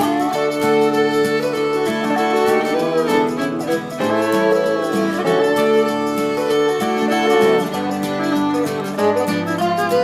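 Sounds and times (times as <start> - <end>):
fiddle: 0.0 - 10.0
strummed guitar: 0.0 - 10.0.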